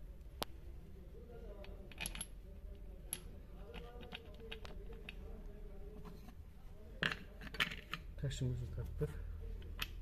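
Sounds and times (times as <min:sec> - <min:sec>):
faint metallic clicks and taps: 0:03.0 - 0:06.4.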